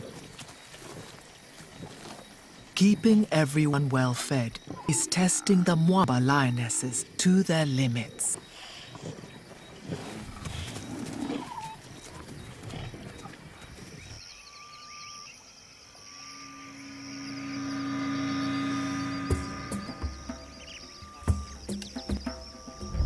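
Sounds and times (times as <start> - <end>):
lions growling: 8.4 - 14.2
rising squeal: 16.0 - 21.8
soft sustained music: 16.0 - 23.0.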